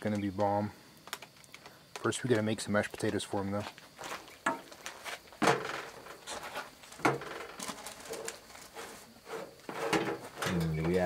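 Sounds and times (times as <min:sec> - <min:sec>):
soft scraping: 0:07.7 - 0:10.4.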